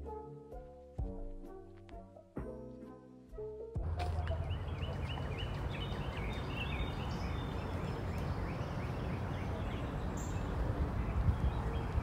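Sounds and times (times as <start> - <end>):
outdoor background rumble: 3.8 - 12.0
bird chirping: 4.1 - 12.0.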